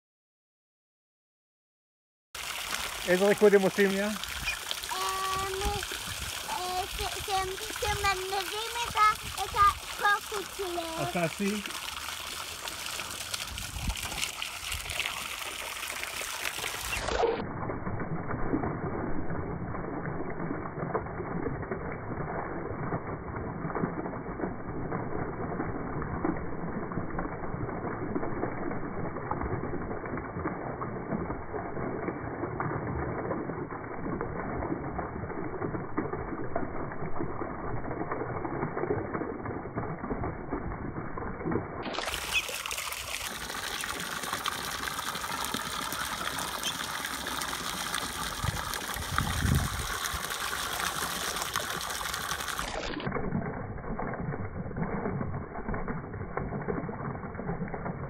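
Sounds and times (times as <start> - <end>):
ducks splashing: 2.4 - 17.1, 41.9 - 52.8
hose water splashing into tub: 2.4 - 58.0.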